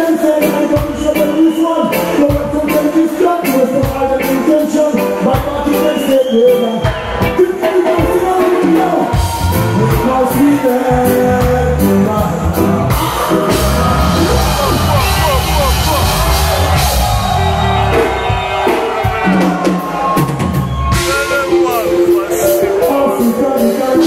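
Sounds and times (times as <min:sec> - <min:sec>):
live band music: 0:00.0 - 0:24.0
person singing: 0:07.5 - 0:16.7, 0:21.1 - 0:24.0
deep bass: 0:09.2 - 0:18.6.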